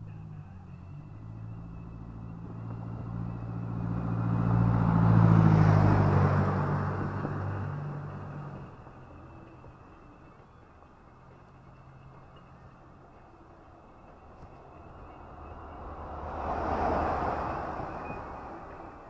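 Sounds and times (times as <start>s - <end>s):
car passing by: 0.7s - 9.7s, 13.9s - 19.0s.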